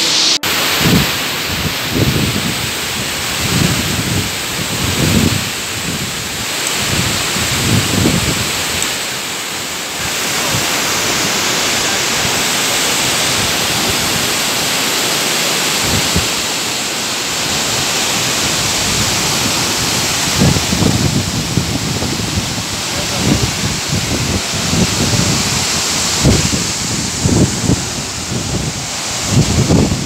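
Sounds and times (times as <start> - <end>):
waterfall crashing into pool: 0.0 - 30.0.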